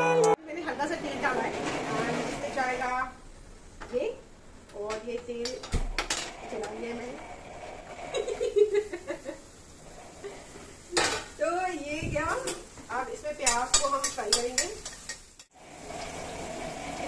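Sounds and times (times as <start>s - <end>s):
metal spatula stirring in pan: 13.4s - 15.6s.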